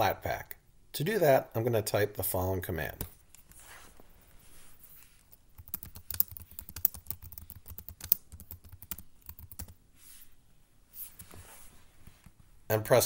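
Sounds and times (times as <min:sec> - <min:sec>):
computer keyboard typing: 0:05.3 - 0:09.8.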